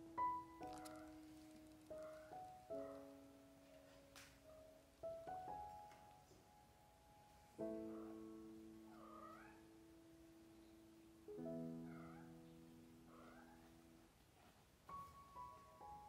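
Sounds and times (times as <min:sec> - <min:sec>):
soft piano chords: 0:00.0 - 0:16.0
kitten meowing: 0:09.0 - 0:09.6.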